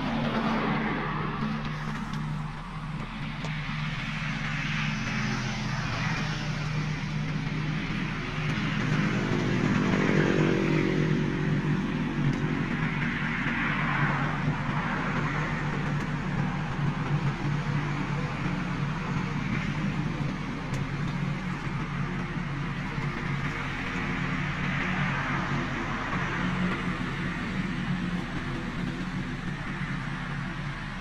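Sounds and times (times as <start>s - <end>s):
engine running steadily: 0.0s - 31.0s.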